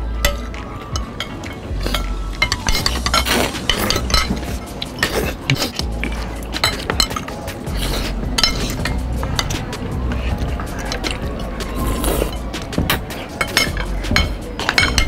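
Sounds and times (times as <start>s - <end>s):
cutlery clinking on plates: 0.2s - 15.0s.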